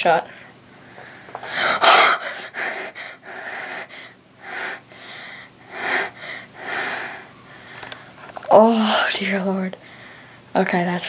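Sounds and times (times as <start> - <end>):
boy gasping and breathing hard: 1.4 - 8.0.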